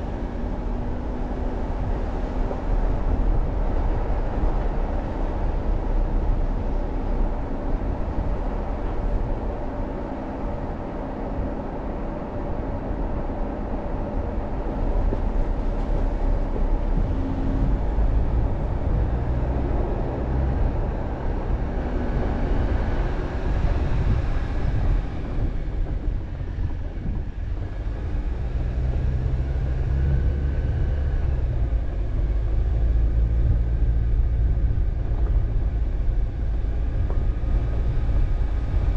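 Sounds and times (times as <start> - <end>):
vehicle engine and road rumble: 0.0 - 38.9.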